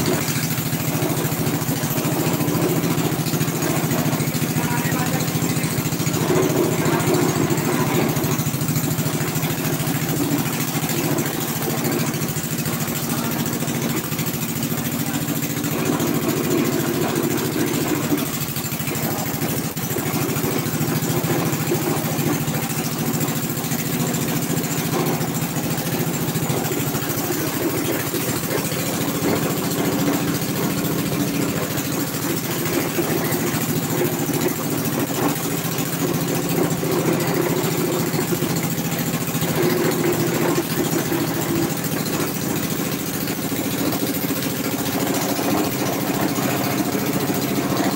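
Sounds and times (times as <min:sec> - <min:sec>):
road roller engine running: 0:00.0 - 0:47.9.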